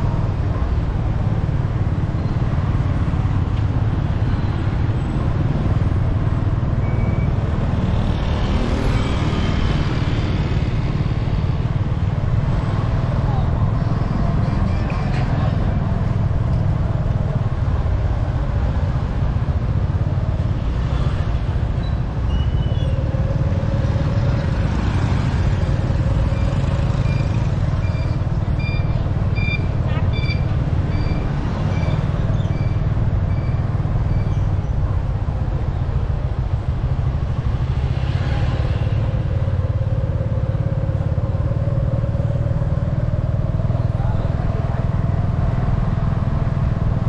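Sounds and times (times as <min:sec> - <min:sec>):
wind and road noise: 0:00.0 - 0:47.0
short high beeps: 0:27.0 - 0:32.0.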